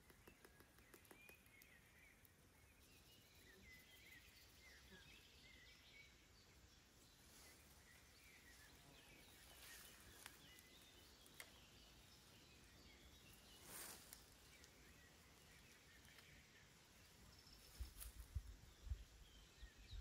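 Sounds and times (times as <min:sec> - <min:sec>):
soft clicks: 0:00.0 - 0:02.4, 0:10.2 - 0:11.6
small bird chirps: 0:00.0 - 0:20.0.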